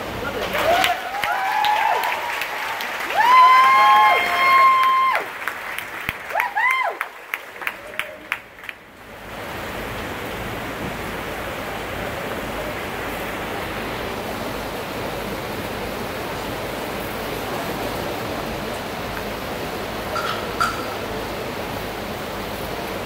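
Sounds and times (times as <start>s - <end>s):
large audience applauding: 0.0s - 9.3s.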